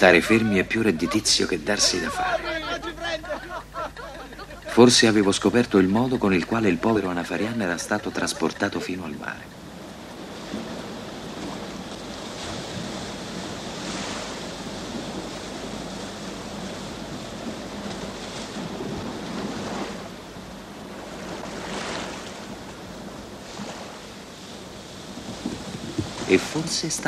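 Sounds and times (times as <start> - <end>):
waves breaking on sandy beach: 0.0 - 27.0.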